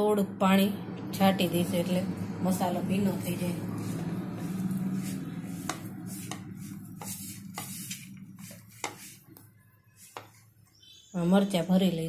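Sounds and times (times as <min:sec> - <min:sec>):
fingers rubbing masala in a pan: 0:02.9 - 0:10.9.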